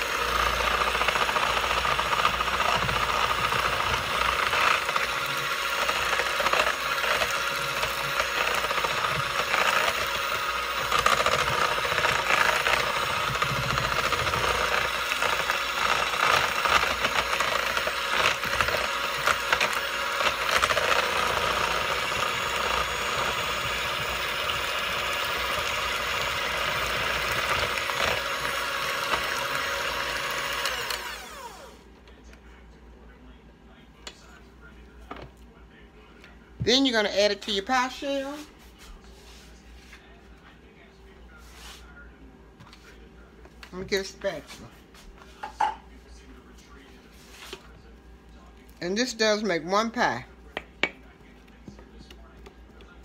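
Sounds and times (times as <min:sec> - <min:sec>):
electric mixer beaters whirring: 0:00.0 - 0:32.0, 0:36.6 - 0:38.4, 0:46.7 - 0:53.0.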